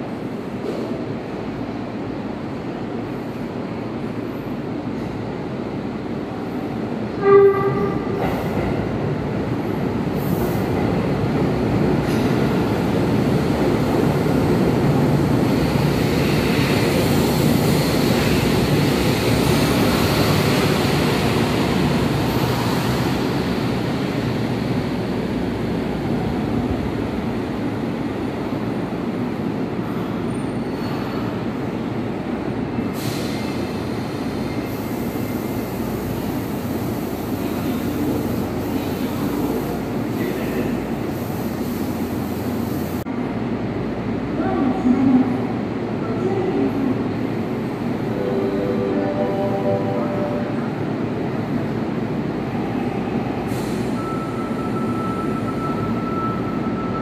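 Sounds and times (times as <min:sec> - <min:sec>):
train rumbling into station: 0:00.0 - 0:57.0
train horn blast: 0:07.2 - 0:08.1.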